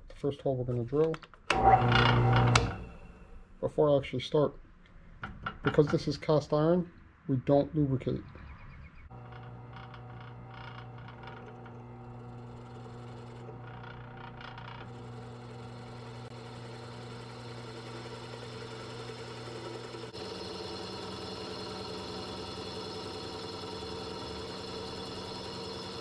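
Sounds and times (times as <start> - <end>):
drill press motor hum: 1.5 - 3.5, 9.1 - 26.0
drill bit cutting metal hiss: 16.9 - 26.0.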